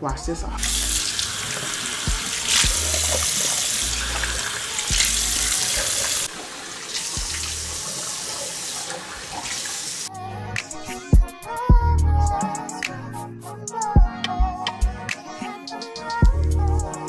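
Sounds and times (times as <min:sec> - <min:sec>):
tap water running into sink: 0:00.6 - 0:10.1.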